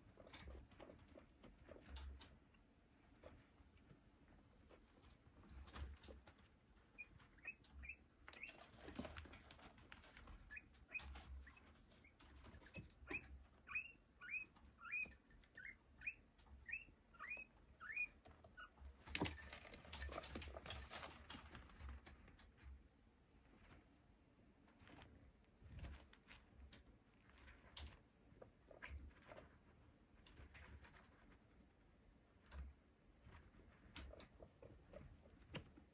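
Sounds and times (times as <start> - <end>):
guinea pig chirping: 4.6 - 21.8, 27.3 - 31.8, 33.3 - 35.9.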